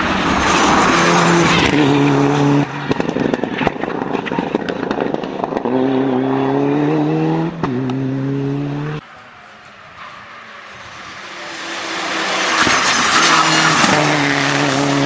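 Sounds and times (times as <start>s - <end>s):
rally car engine accelerating: 0.1s - 9.0s, 11.0s - 15.0s
exhaust pops and bangs: 2.9s - 5.7s.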